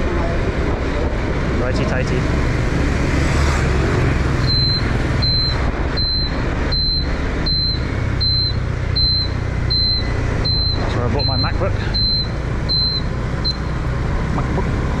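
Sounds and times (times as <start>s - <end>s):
scooter engine and road noise: 0.0s - 15.0s
turn indicator buzzer beeping: 4.4s - 13.9s.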